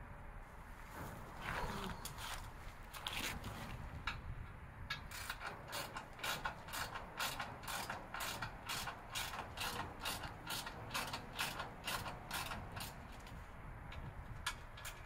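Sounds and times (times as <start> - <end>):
ratchet wrench clicking: 4.9 - 13.0.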